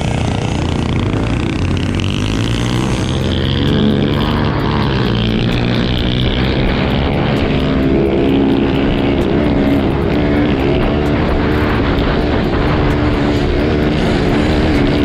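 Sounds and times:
dirt bike engine revving: 0:00.0 - 0:15.0
wind on microphone: 0:00.0 - 0:15.0.

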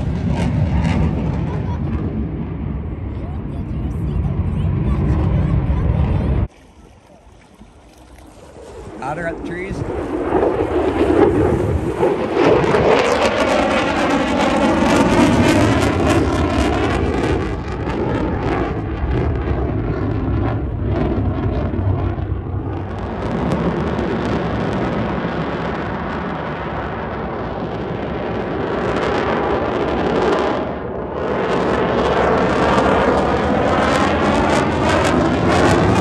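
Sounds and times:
fighter jet flying past: 0:00.0 - 0:06.5, 0:07.6 - 0:36.0.

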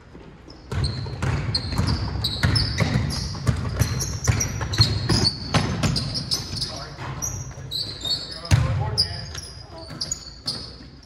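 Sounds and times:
sneakers squeaking on gym floor: 0:00.0 - 0:11.0
basketball dribbling: 0:00.7 - 0:07.4, 0:08.5 - 0:09.2.

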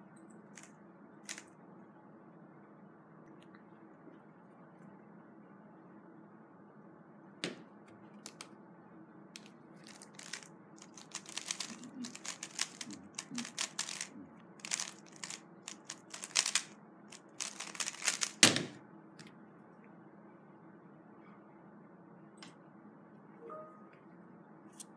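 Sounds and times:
puzzle cube clicking and clacking: 0:09.4 - 0:18.6.

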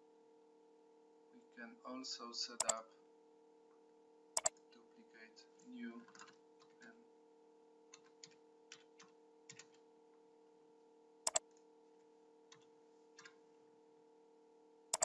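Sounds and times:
computer mouse clicks: 0:02.6 - 0:02.8
keyboard typing: 0:02.6 - 0:02.8.

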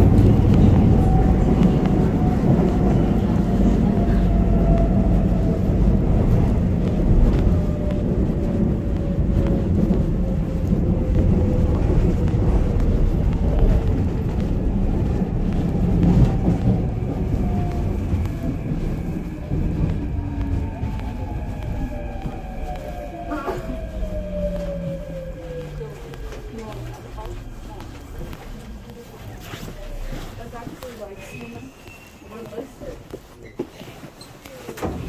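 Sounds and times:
train wheels rumbling on rails: 0:00.0 - 0:35.0.

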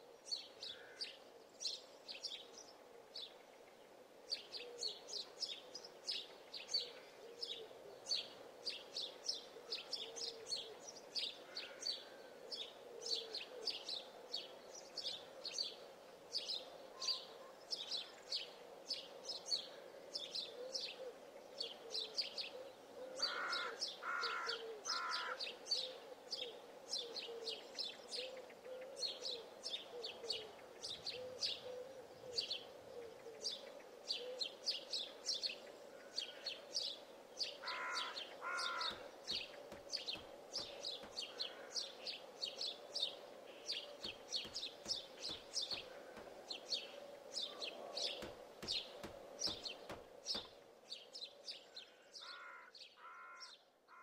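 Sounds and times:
birds chirping: 0:00.0 - 0:54.0.

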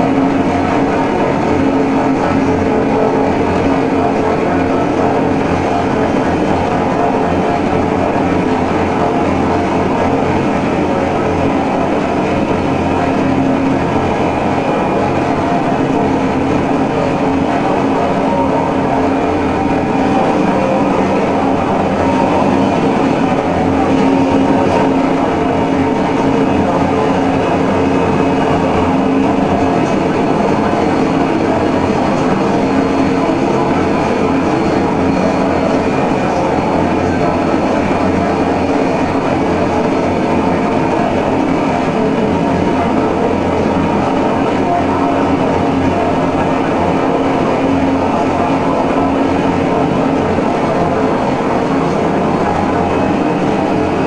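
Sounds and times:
electronic drone music: 0:00.0 - 0:54.0.

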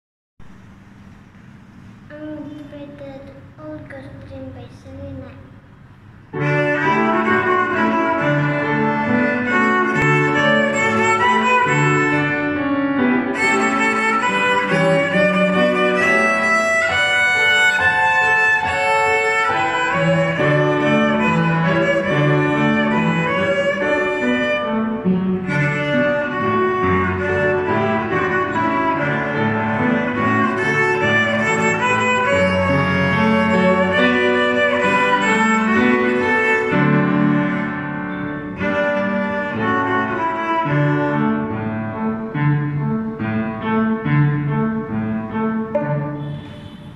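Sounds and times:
lower accompaniment: 0:05.2 - 0:46.9
violin playing simple tune: 0:06.4 - 0:37.9, 0:38.5 - 0:41.7.

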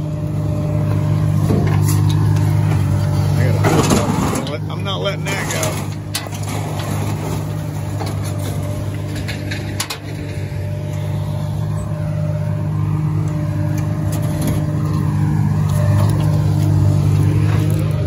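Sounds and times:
vehicle engine idling: 0:00.0 - 0:18.0
metallic clatter: 0:05.2 - 0:10.7.

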